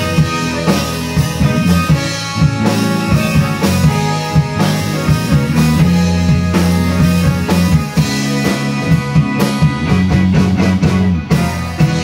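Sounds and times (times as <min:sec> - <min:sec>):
drum kit beat: 0:00.0 - 0:12.0
electric bass line: 0:00.0 - 0:12.0
electric guitar: 0:00.0 - 0:12.0
keyboard: 0:00.0 - 0:12.0.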